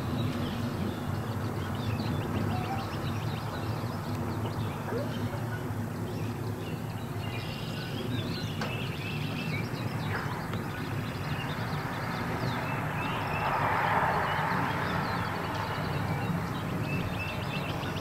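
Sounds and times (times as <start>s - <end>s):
small birds chirping: 0.0s - 18.0s.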